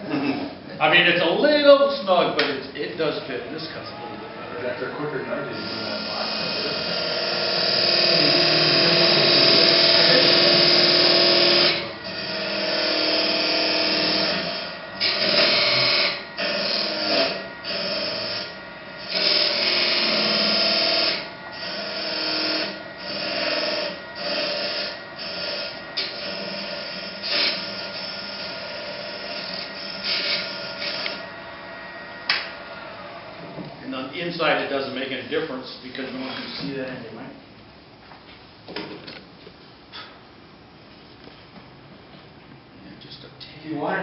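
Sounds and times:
wood lathe spinning: 0:05.5 - 0:33.6
turning tool cutting wood: 0:05.6 - 0:33.0.

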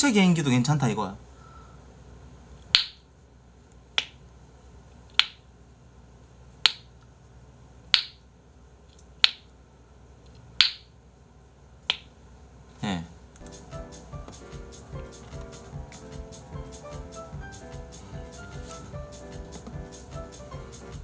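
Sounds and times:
sharp clicks of hands and jaw: 0:05.2 - 0:05.4, 0:06.6 - 0:06.9.

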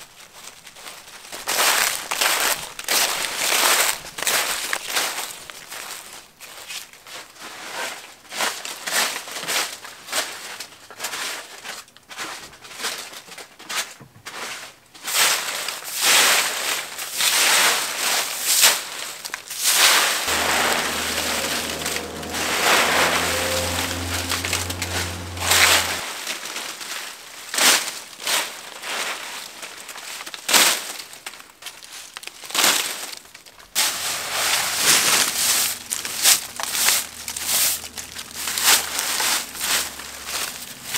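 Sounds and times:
low steady hum: 0:20.3 - 0:26.0.

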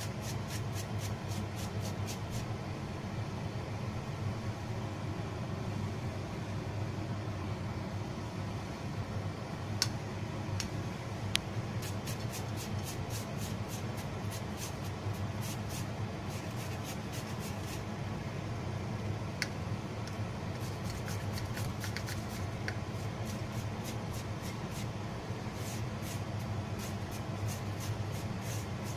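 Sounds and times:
peeler scraping carrot: 0:00.0 - 0:02.5, 0:11.8 - 0:17.8, 0:20.6 - 0:24.9, 0:25.5 - 0:28.9
steady low hum: 0:00.0 - 0:28.9.

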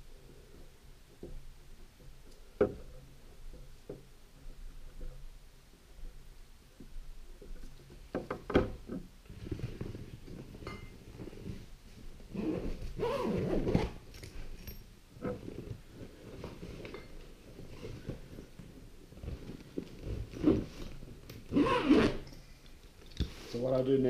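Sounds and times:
zipper scraping: 0:12.3 - 0:14.1, 0:19.9 - 0:22.3
fabric bags rustling: 0:15.5 - 0:22.5.

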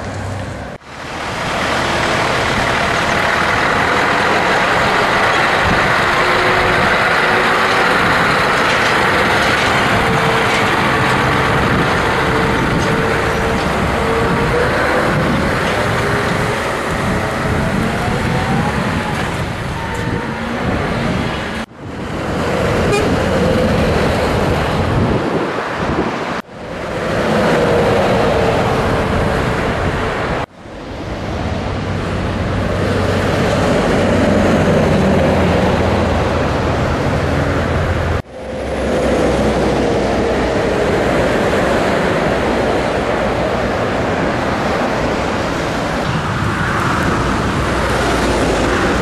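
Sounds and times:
truck engine pulling: 0:00.0 - 0:49.0.

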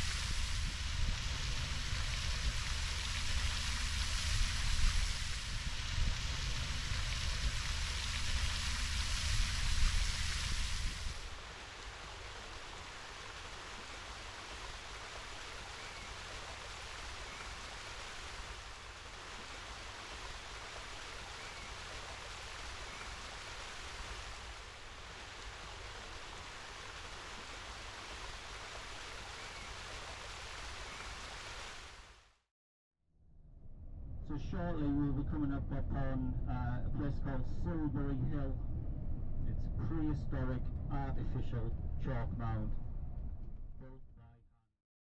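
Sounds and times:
water rushing over rocks: 0:00.0 - 0:32.0.

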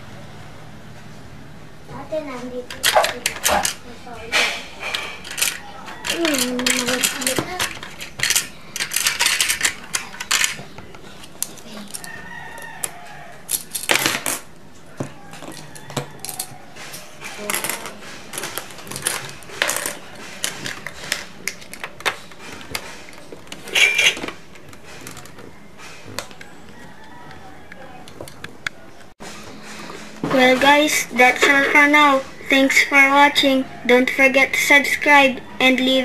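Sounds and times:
plastic coins clattering: 0:05.1 - 0:10.6, 0:13.5 - 0:14.4, 0:16.2 - 0:16.5, 0:17.4 - 0:22.2.

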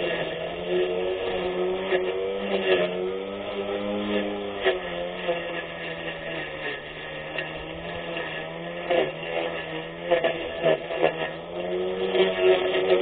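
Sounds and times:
blade swishing through grass: 0:00.0 - 0:13.0
electric grass cutter motor whine: 0:00.0 - 0:13.0.

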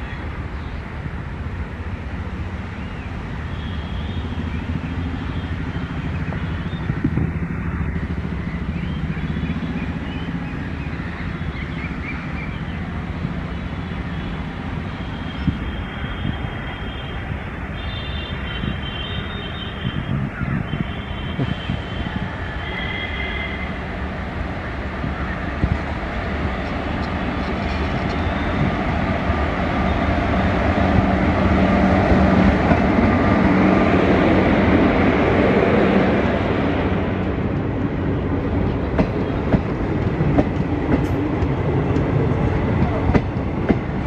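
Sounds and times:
electric locomotive humming: 0:00.0 - 0:44.0
locomotive low rumble: 0:23.7 - 0:44.0.

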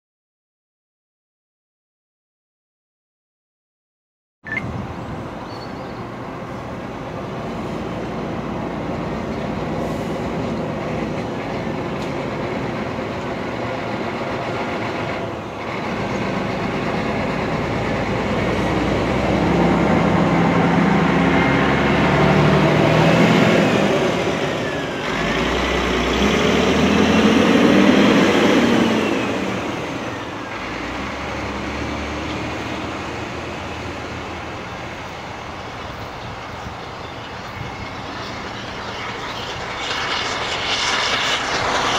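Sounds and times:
steam locomotive working hard: 0:05.2 - 0:41.9.

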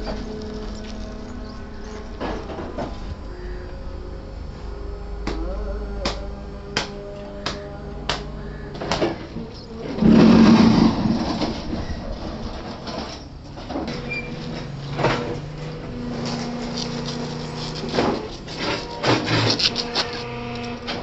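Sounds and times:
steady machine hum: 0:00.0 - 0:21.0
wheelbarrow of gravel rattling: 0:09.8 - 0:15.4, 0:16.1 - 0:21.0.

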